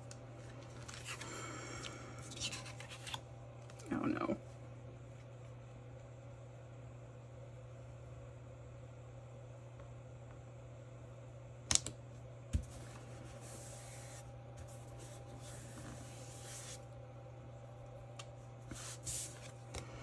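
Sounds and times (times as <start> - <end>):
soft paper rubbing: 12.7 - 16.8, 18.7 - 19.6.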